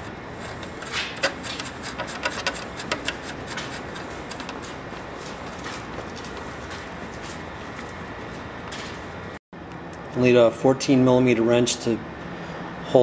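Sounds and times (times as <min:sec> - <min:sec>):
nut clicking on axle bolt: 0:00.6 - 0:04.6.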